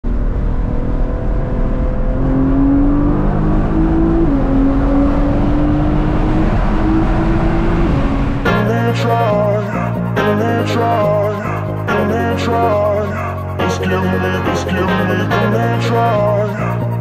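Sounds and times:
car engine from inside cabin: 0.1 - 8.5
music with a beat: 8.5 - 17.0.

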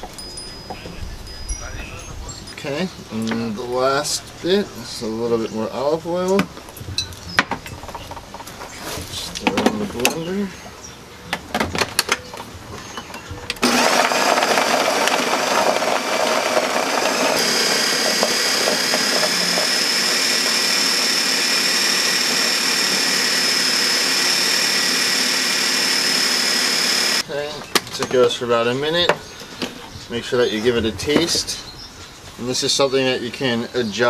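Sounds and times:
blender running: 13.6 - 27.2
high steady whine: 13.6 - 27.2.

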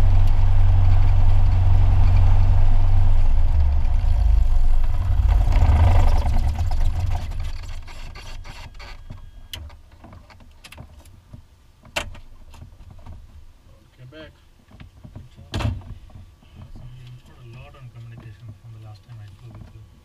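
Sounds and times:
propeller winding down: 0.0 - 8.8.

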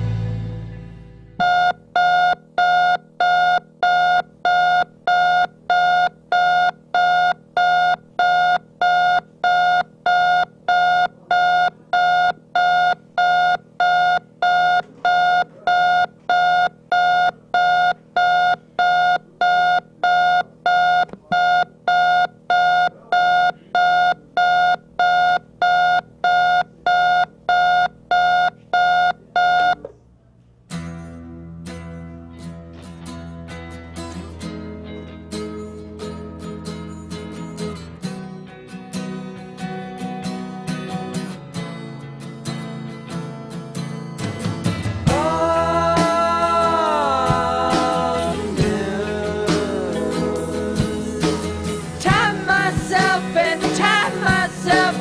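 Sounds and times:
music: 0.0 - 1.5, 30.7 - 55.0
alarm clock beeping: 1.4 - 29.8.

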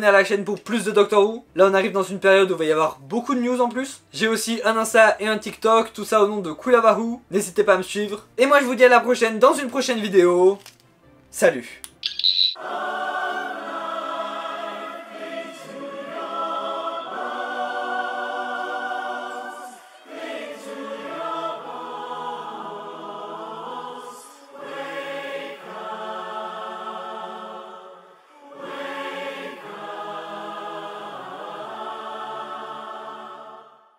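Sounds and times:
choir singing held chords: 12.6 - 33.9.

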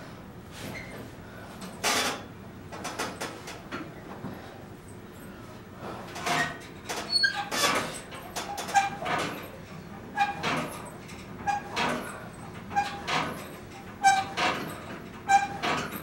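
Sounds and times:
exercise machine creaking and clunking: 0.6 - 4.3, 5.9 - 16.0
short squeaks: 14.0 - 16.0.

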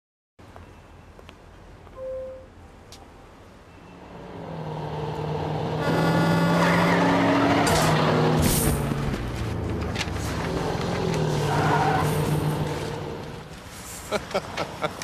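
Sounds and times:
short beep: 2.0 - 2.6.

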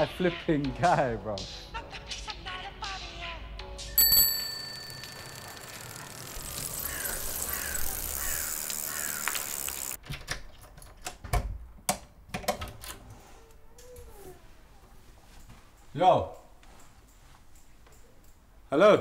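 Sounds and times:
street ambience: 3.9 - 10.0
bicycle rolling: 4.0 - 10.0
bird calling: 6.4 - 10.0.

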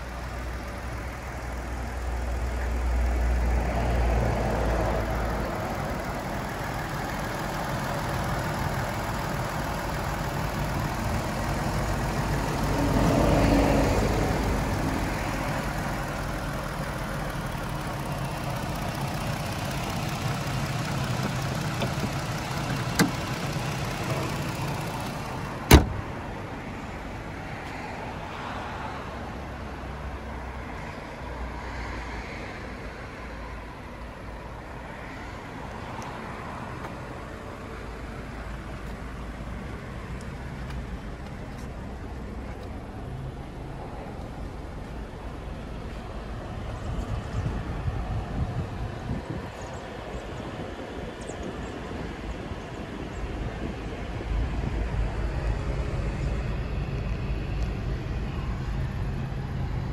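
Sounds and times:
car engine idling: 0.0 - 27.6
car hood slamming shut: 22.8 - 23.4, 25.6 - 26.1.

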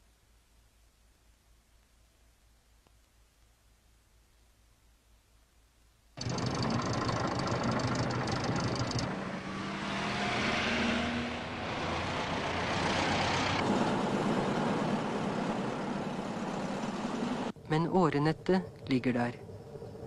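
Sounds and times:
city street traffic: 6.2 - 17.6.

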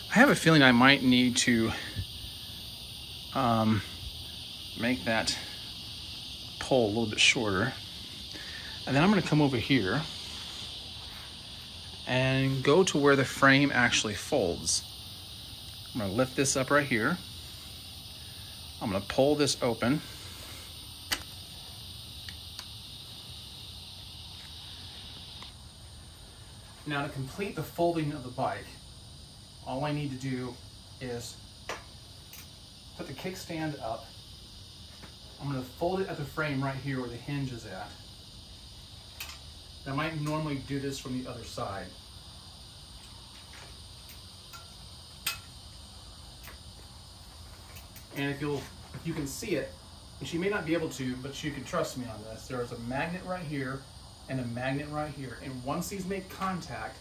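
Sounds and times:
crickets chirping: 0.0 - 57.0
faint high hiss: 0.0 - 57.0
sharp metallic click: 21.1 - 21.3, 44.1 - 45.6.

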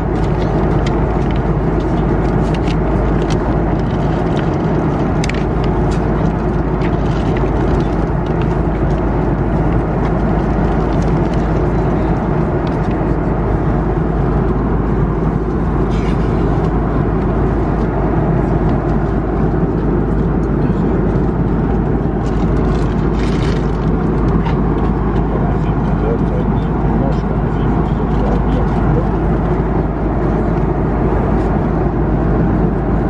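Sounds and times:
airplane cabin engine roar: 0.0 - 33.0.

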